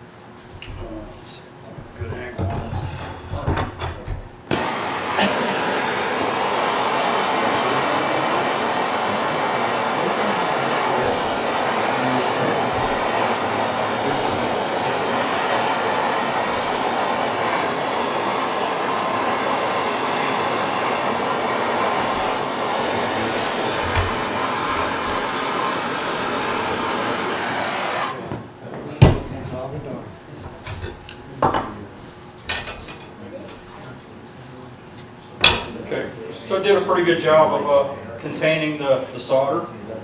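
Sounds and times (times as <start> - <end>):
gas torch hissing: 4.5 - 28.3.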